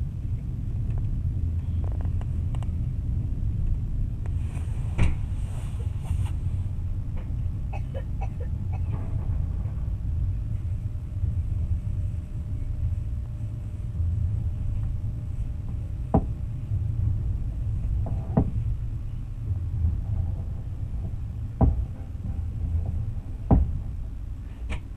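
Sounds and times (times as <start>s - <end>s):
train rumbling on rails: 0.0s - 24.9s
sharp knocks: 16.1s - 16.4s, 23.4s - 23.7s.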